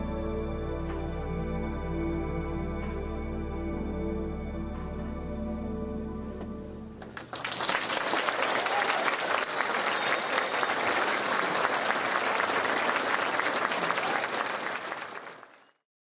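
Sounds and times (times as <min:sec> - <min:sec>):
audience clapping: 0:07.0 - 0:15.8.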